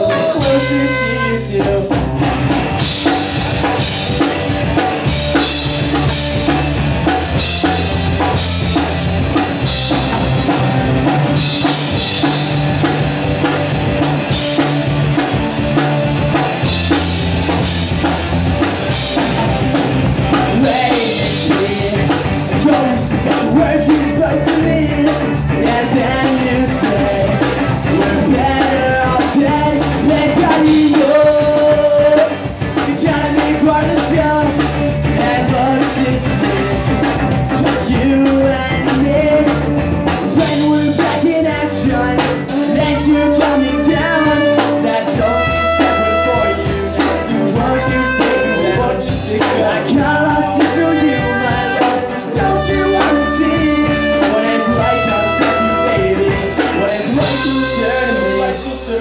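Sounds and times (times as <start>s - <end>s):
person singing lead vocal: 0.0s - 6.5s, 18.6s - 59.0s
live ska punk band playing: 0.0s - 59.0s.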